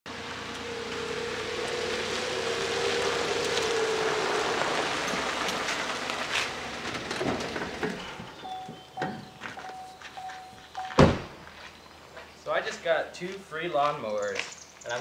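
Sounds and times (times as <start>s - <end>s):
truck engine running with whine: 0.1s - 10.7s
tyres crunching over gravel: 0.2s - 15.0s.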